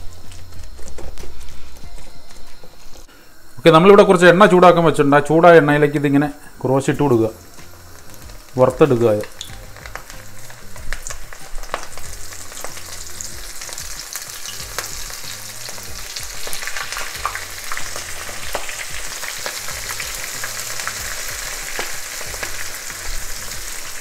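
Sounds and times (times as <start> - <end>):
batter deep-frying in oil: 5.4 - 24.0.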